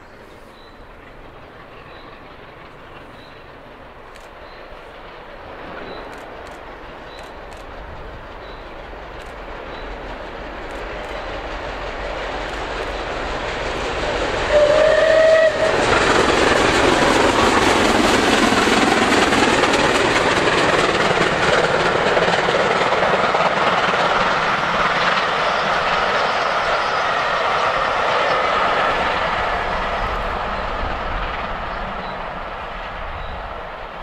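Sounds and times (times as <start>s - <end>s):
steam locomotive passing: 0.0s - 34.0s
train whistle blast: 14.5s - 15.8s.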